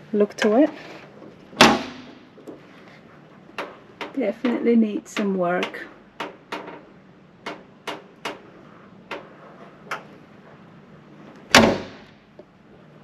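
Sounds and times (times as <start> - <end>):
car door thud: 1.6 - 2.2, 11.5 - 12.1.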